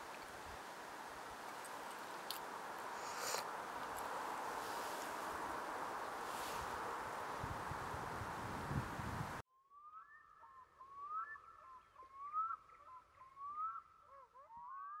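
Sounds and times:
wind noise: 0.0s - 9.4s.

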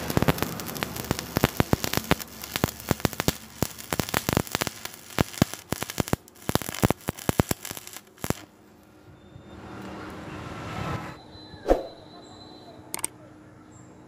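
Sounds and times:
welding arc crackling and popping: 0.0s - 8.5s.

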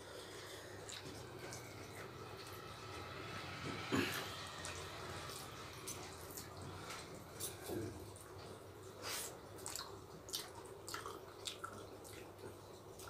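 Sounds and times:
low steady hum: 0.0s - 13.0s
wet chewing and lip-smacking: 0.3s - 2.5s, 6.3s - 13.0s.

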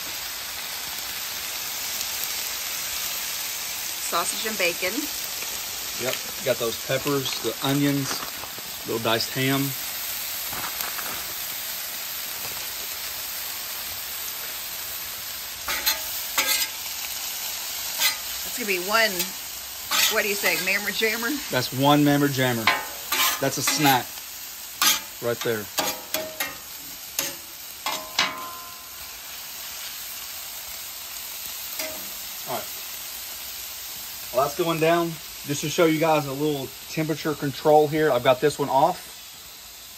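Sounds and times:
food sizzling on griddle: 0.0s - 39.9s
metal spatula scraping griddle: 15.6s - 16.9s, 17.9s - 21.6s, 22.2s - 24.2s, 24.8s - 28.9s, 31.8s - 32.2s.

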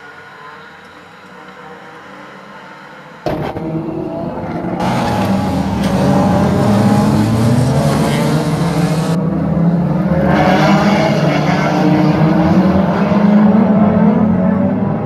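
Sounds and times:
race car engines revving: 0.3s - 15.0s.

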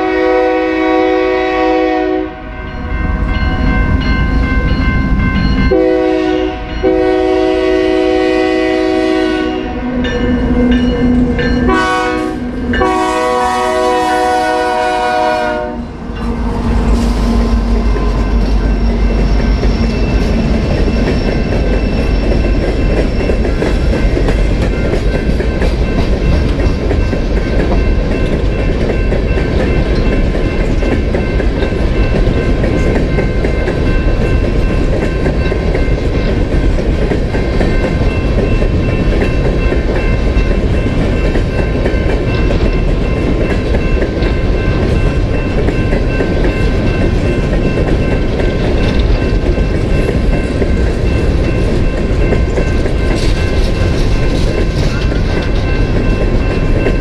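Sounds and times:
train horn: 0.0s - 2.8s, 5.7s - 18.3s
freight train cars rumbling past: 0.0s - 57.0s
crossing signal bell ringing: 1.9s - 7.9s, 9.6s - 57.0s
wheels clacking over rails: 16.5s - 57.0s.

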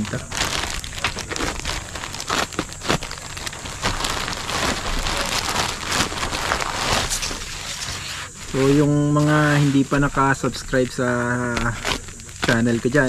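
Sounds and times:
plastic pouch crinkling: 0.0s - 13.0s.

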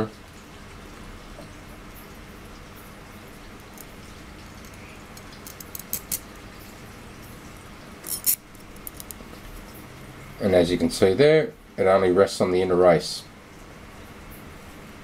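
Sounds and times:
low room hum: 0.0s - 15.0s
metal parts clicking together: 3.6s - 3.9s, 4.6s - 6.3s, 8.0s - 9.2s.

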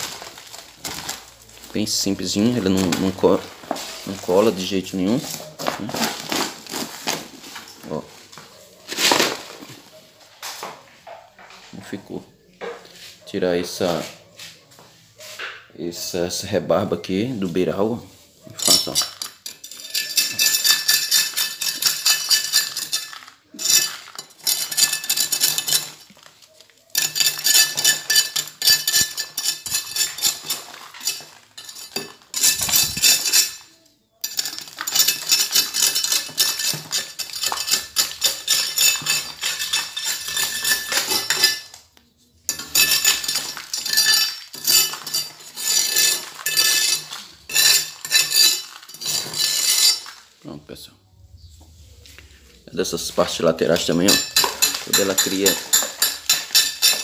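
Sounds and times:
metal tool scraping concrete: 1.9s - 7.8s, 18.5s - 26.3s, 27.0s - 41.8s, 42.5s - 50.2s, 52.9s - 57.0s.

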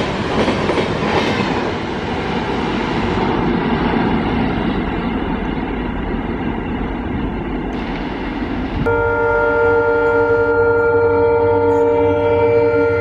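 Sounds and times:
train rumbling on rails: 0.0s - 13.0s
locomotive horn blast: 8.8s - 13.0s.

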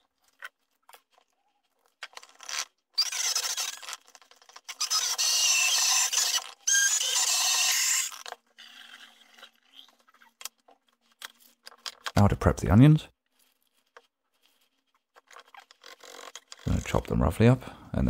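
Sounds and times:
stick blender whining: 2.5s - 9.6s.

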